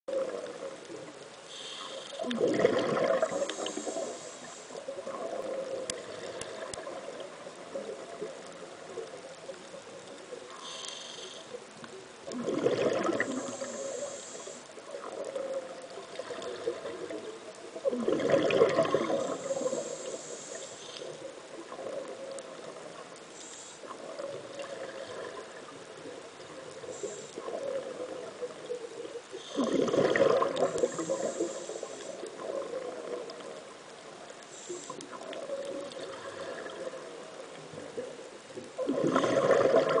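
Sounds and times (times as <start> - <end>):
underwater exhalation bubbles: 2.2 - 3.8, 12.3 - 13.8, 14.9 - 19.8, 29.5 - 31.5, 38.8 - 40.0.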